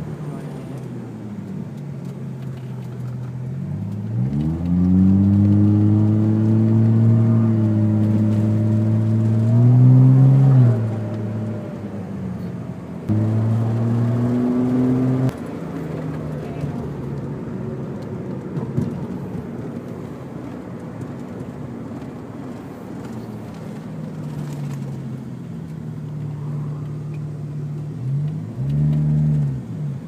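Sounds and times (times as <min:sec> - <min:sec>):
car engine from inside cabin: 0:00.0 - 0:30.0.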